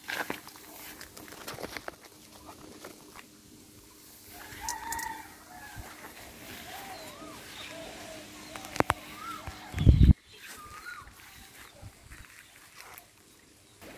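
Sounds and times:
chicken calling: 4.2 - 12.2.

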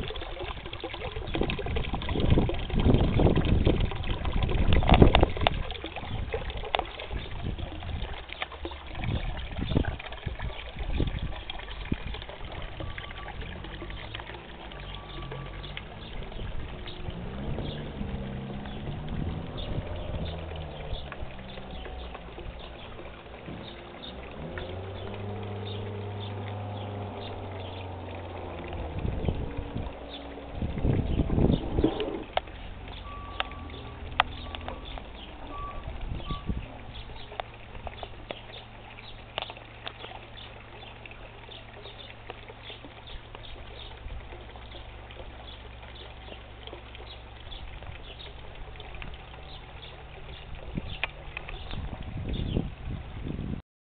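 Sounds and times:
fountain splashing and trickling: 0.0 - 53.6
low rumbling: 0.0 - 53.6
low steady hum: 0.0 - 53.6.

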